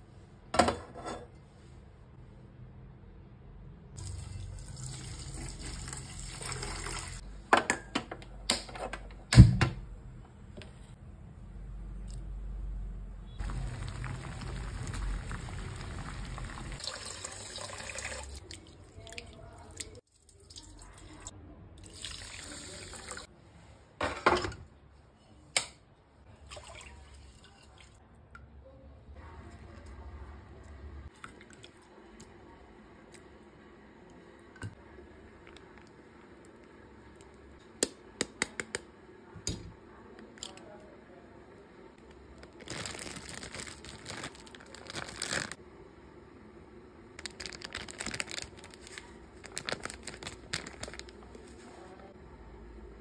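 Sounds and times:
water pouring into metal pot: 0:04.0 - 0:07.2, 0:13.4 - 0:18.7
water dripping and sloshing: 0:13.4 - 0:22.5, 0:26.3 - 0:28.0.

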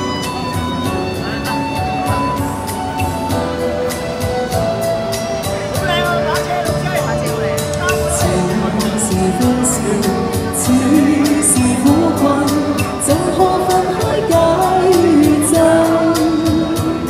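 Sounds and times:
music accompaniment with beat: 0:00.0 - 0:17.0
woman singing through speaker: 0:08.0 - 0:17.0.

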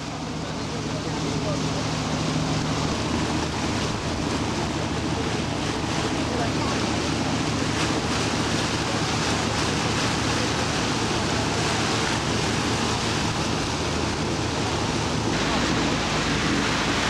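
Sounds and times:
motorboat engine drone: 0:00.0 - 0:17.0
rushing water: 0:00.0 - 0:17.0.

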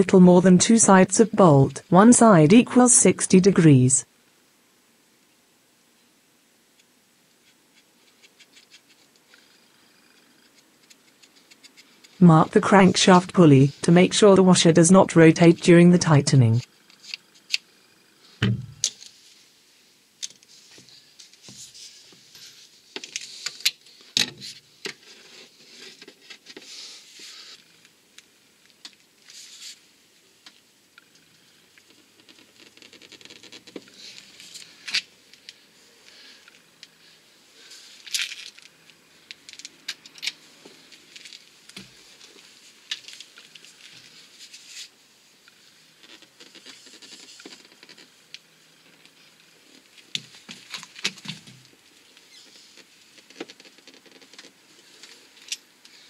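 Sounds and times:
dull thump: 0:18.4 - 0:18.8.

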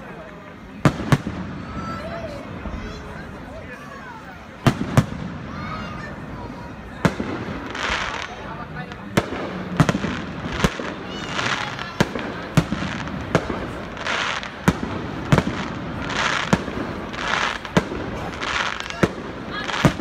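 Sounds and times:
fireworks bangs: 0:00.6 - 0:03.1, 0:04.5 - 0:20.0
fireworks hissing: 0:04.6 - 0:20.0.

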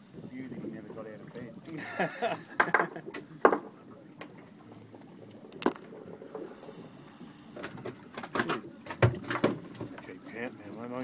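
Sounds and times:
fishing reel clicking: 0:00.0 - 0:00.6, 0:06.4 - 0:07.8, 0:09.6 - 0:11.0.

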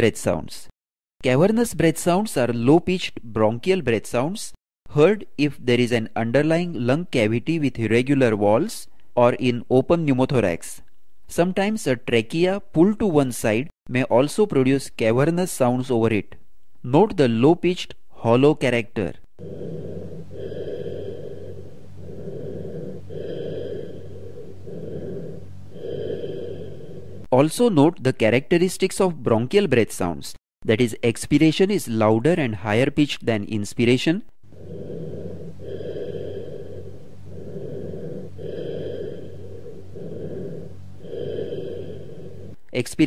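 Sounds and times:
hollow rushing breath sounds: 0:19.4 - 0:27.3, 0:34.5 - 0:42.6
low hum: 0:19.4 - 0:27.3.

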